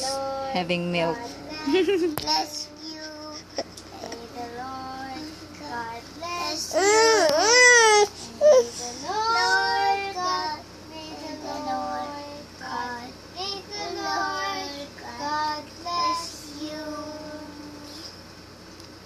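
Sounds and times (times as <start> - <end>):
girls singing in high voices: 8.9 - 18.0.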